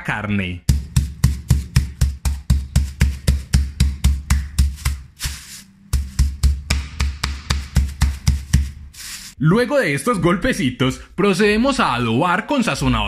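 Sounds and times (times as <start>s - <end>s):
meat mallet pounding meat: 0.7s - 8.9s.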